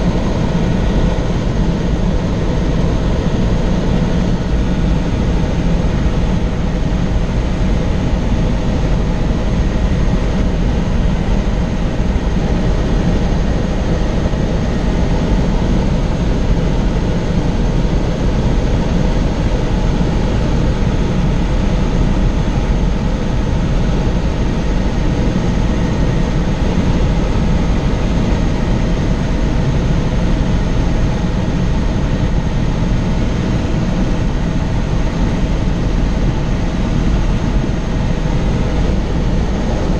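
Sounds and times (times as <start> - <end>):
helicopter engine and rotor drone: 0.0 - 39.9.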